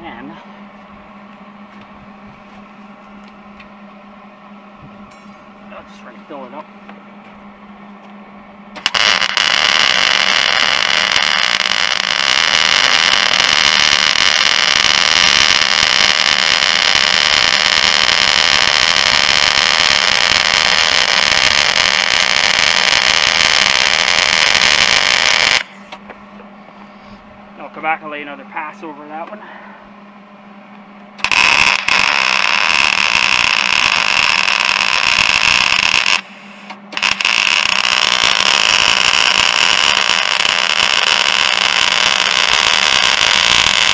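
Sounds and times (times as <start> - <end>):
stick welding arc sizzling: 8.8 - 26.0, 31.2 - 43.9.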